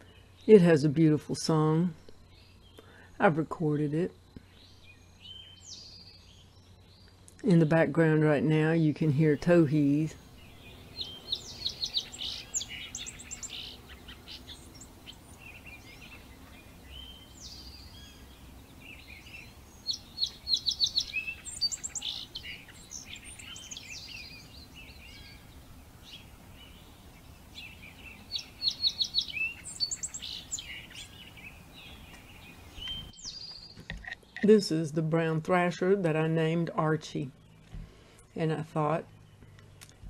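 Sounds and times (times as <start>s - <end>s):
songbirds singing trilled phrases: 0.0s - 40.0s
faint bird calls: 10.2s - 33.6s.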